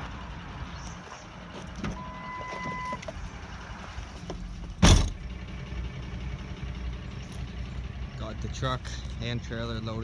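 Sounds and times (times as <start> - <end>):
pickup truck engine rumble: 0.0 - 10.0
loud brief thump: 4.8 - 5.2.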